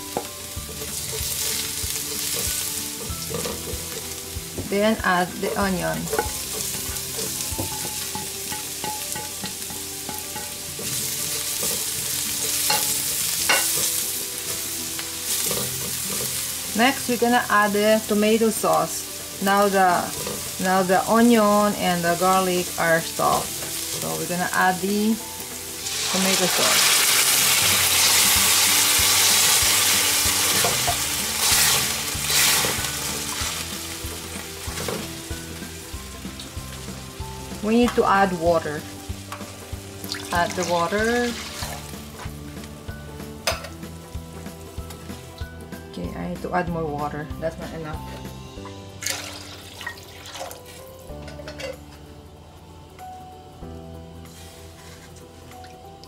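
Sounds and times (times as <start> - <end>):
onion sizzling in hot oil: 0.0 - 45.8, 46.4 - 51.5, 52.1 - 56.0
spatula scraping a wok: 0.6 - 4.4, 5.9 - 16.8, 25.5 - 35.8, 54.2 - 55.3.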